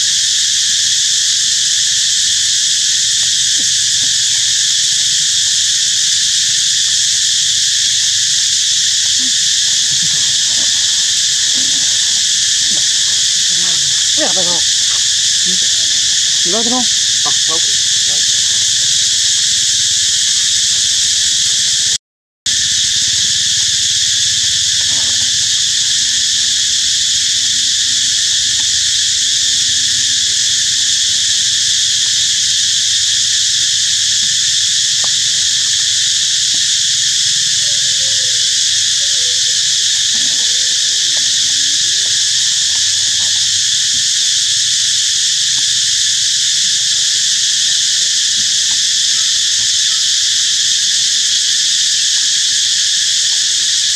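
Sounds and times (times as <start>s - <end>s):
insects buzzing: 0.0s - 53.9s
faint wavering animal calls: 3.6s - 21.4s.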